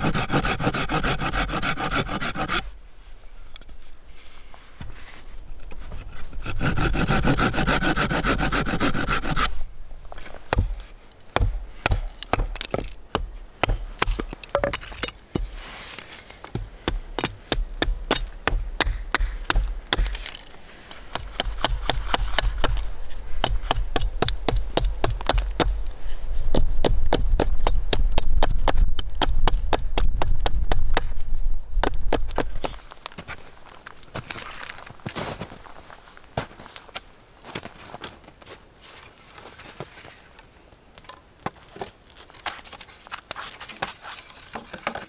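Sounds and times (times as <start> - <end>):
hand saw rasping through wood: 0.0 - 2.7, 6.4 - 9.5
hatchet chopping wood: 10.5 - 15.6, 16.5 - 20.5, 21.1 - 25.8, 26.5 - 31.1.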